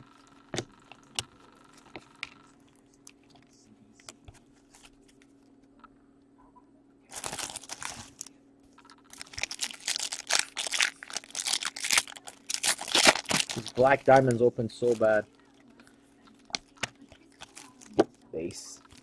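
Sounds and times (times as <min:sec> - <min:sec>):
foil wrapper crinkling and tearing: 0:07.1 - 0:08.3, 0:08.9 - 0:19.0.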